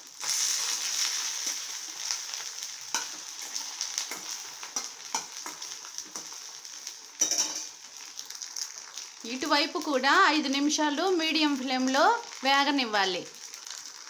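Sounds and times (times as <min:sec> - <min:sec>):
food frying in hot oil: 0:00.0 - 0:14.0
metal spoon scraping a pan: 0:02.9 - 0:06.4, 0:07.2 - 0:07.7.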